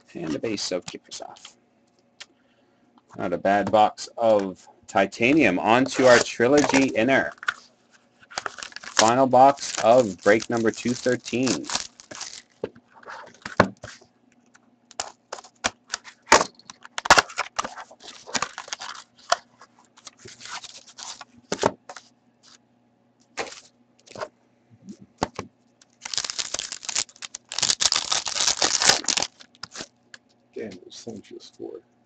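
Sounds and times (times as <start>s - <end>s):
foil pack crinkling and tearing: 5.8s - 7.6s, 8.2s - 12.6s, 14.9s - 21.3s, 23.4s - 24.2s, 25.8s - 29.9s
cardboard box cracking and snapping: 8.4s - 10.4s, 26.0s - 29.9s.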